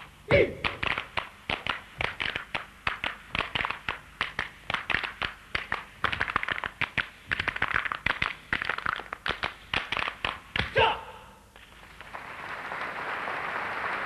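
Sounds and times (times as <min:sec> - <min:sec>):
sharp wooden percussion clacks: 0:00.3 - 0:10.8.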